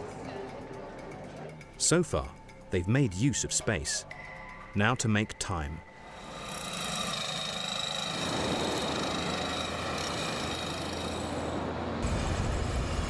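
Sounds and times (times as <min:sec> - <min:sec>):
construction machinery engine whine: 0:05.8 - 0:13.0.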